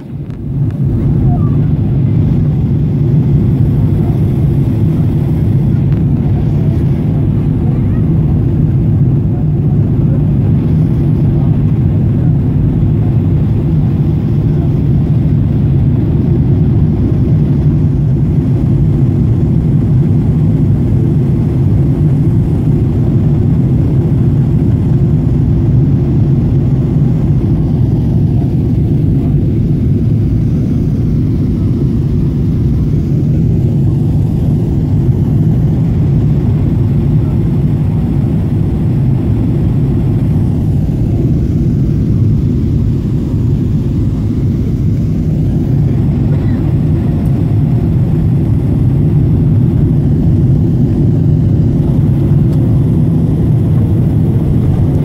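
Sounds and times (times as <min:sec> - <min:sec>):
jet engine drone in cabin: 0:00.0 - 0:55.0
rushing air: 0:24.5 - 0:55.0.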